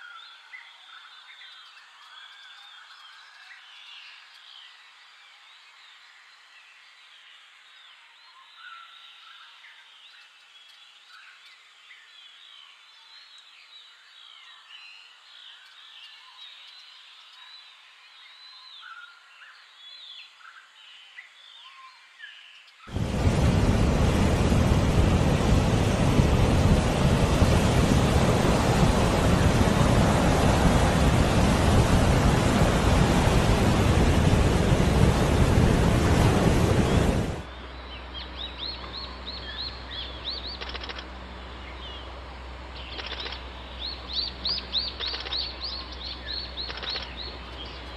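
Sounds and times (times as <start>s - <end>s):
surf breaking on rocks: 22.9s - 37.5s
small birds chirping: 36.8s - 42.1s, 42.7s - 47.9s.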